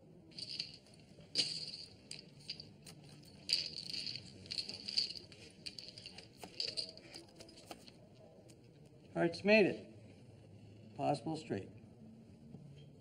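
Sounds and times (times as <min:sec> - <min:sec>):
poker chips clicking: 0:00.3 - 0:08.0.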